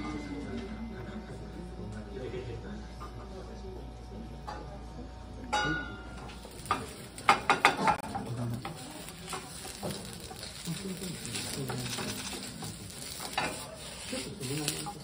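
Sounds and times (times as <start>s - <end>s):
food sizzling: 6.1s - 15.0s
spatula and tongs clacking in pan: 6.6s - 15.0s.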